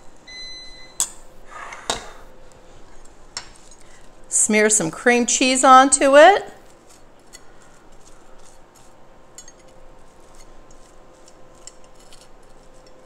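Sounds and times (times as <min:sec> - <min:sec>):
knife scraping on toast: 0:06.6 - 0:13.0.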